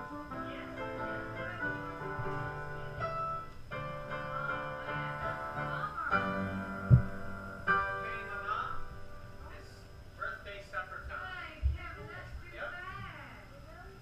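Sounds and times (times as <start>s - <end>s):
piano chords: 0.0s - 10.4s
sharp low thump: 6.8s - 7.4s.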